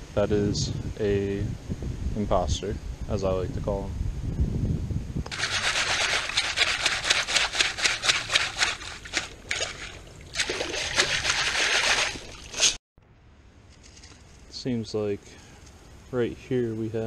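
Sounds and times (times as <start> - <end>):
water sloshing and splashing: 5.3 - 12.8.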